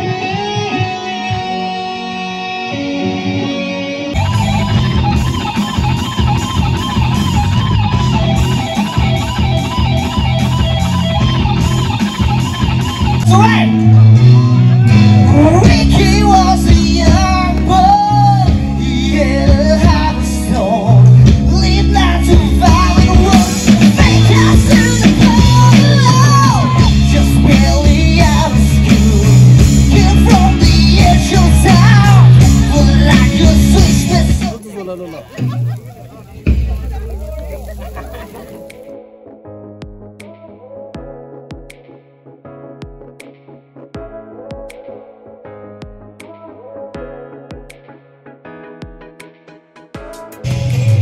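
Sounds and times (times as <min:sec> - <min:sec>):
electric guitar wavering phrase: 0:00.0 - 0:34.6
live rock band playing: 0:00.0 - 0:39.0, 0:48.6 - 0:51.0
person singing: 0:13.2 - 0:34.7, 0:38.0 - 0:39.5, 0:40.2 - 0:42.0, 0:44.0 - 0:48.0, 0:50.0 - 0:51.0.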